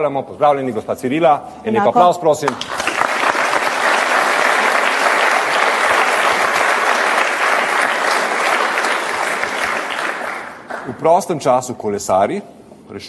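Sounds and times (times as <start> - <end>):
audience applauding: 2.4 - 11.1.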